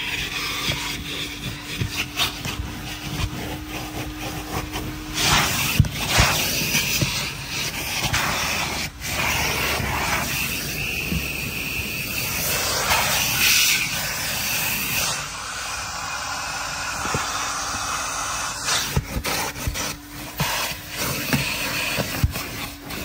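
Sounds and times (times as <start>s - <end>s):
steady low hum: 0.2s - 12.9s.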